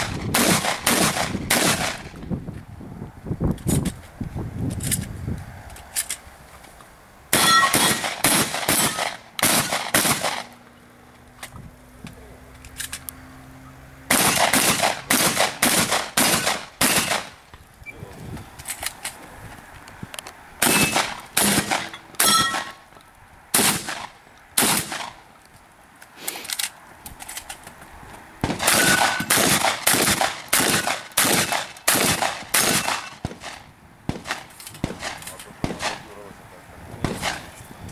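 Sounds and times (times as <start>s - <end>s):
shotgun shots: 0.0s - 2.2s, 7.3s - 10.5s, 14.1s - 17.4s, 20.6s - 22.8s, 23.5s - 25.2s, 28.4s - 36.1s, 37.0s - 37.5s.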